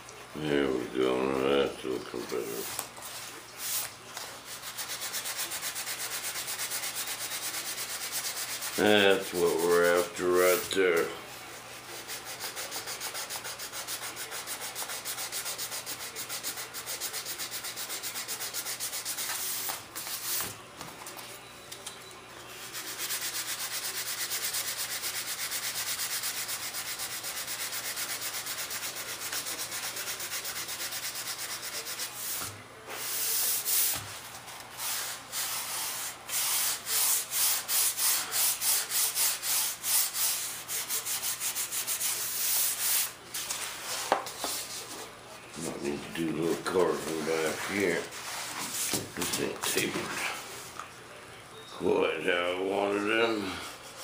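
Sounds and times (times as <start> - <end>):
sandpaper rubbing on wood: 4.5 - 10.7, 11.8 - 20.5, 22.6 - 34.1, 34.8 - 43.2, 46.4 - 49.9.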